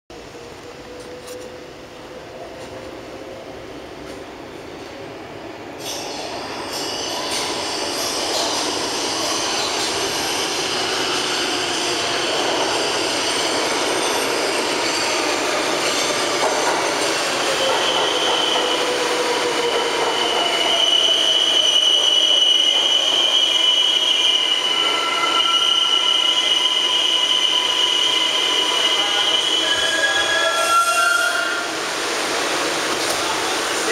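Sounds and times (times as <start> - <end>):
subway train braking: 0.1 - 33.9.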